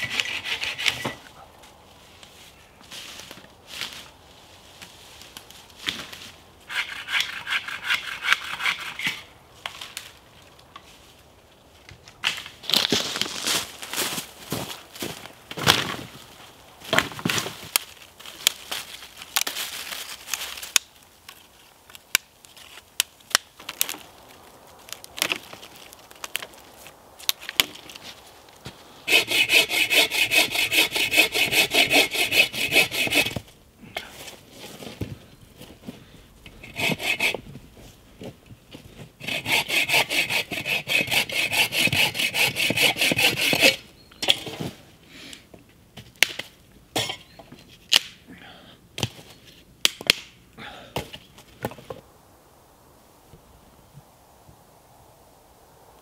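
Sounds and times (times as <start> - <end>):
hand saw cutting branch: 0.0 - 1.2, 6.7 - 9.3, 29.1 - 33.5, 36.5 - 37.4, 39.2 - 43.8
dry twigs snapping: 17.7 - 28.7.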